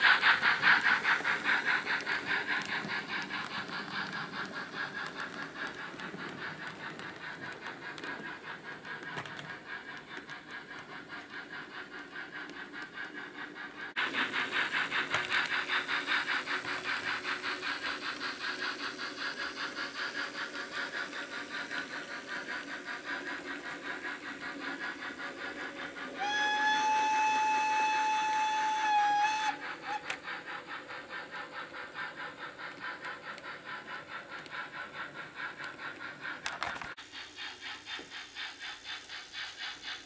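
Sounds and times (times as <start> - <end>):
model steam locomotive chuffing: 0.0 - 40.0
steam whistle: 26.2 - 30.1.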